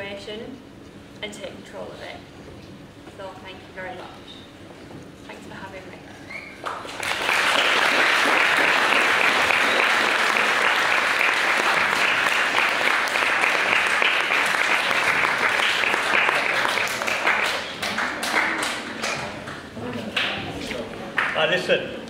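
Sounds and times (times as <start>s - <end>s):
audience applause: 6.6s - 20.3s.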